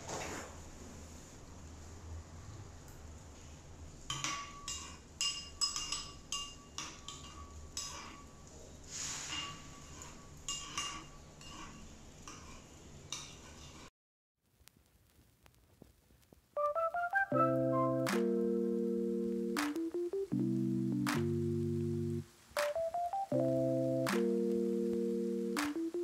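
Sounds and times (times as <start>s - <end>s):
metal spoon clinking in ceramic bowl: 4.1s - 8.1s.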